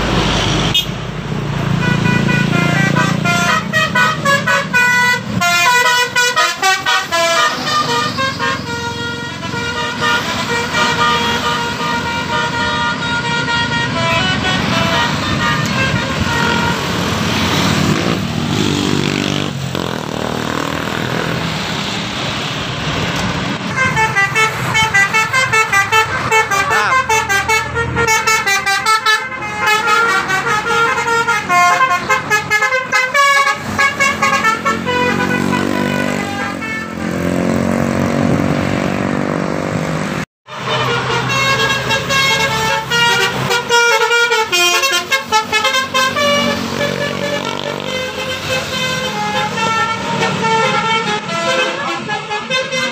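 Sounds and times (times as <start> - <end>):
motorcycles passing: 0.0 - 28.8, 29.6 - 52.8
bus engines running: 0.0 - 52.9
bus multi-tone horn jingles: 1.8 - 17.0, 23.7 - 37.3, 40.5 - 52.9.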